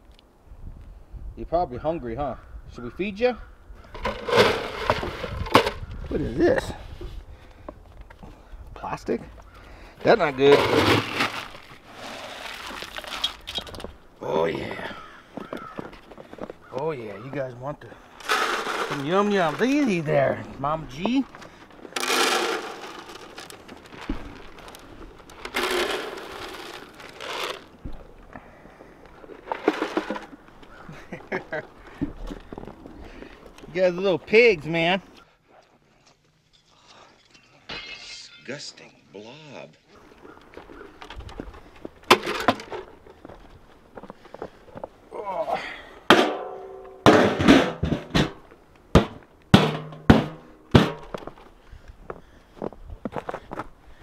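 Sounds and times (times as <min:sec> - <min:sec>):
metal tub clanking: 0:03.9 - 0:05.8, 0:10.3 - 0:11.3, 0:18.2 - 0:20.1, 0:22.0 - 0:23.6, 0:46.1 - 0:48.4, 0:49.0 - 0:51.0
feed pouring into plastic bins: 0:18.2 - 0:19.9, 0:22.0 - 0:24.8, 0:25.4 - 0:27.7.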